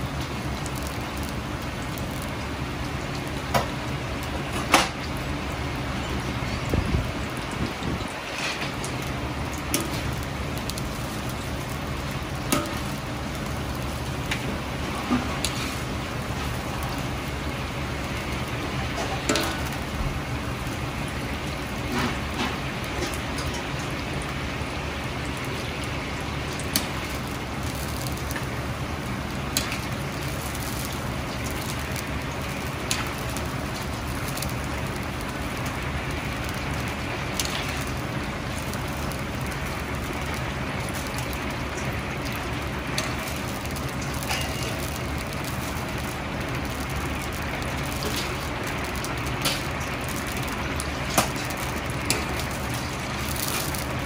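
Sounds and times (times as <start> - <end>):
gas burner rumble: 0.0 - 54.0
oil sizzling hiss: 0.0 - 54.0.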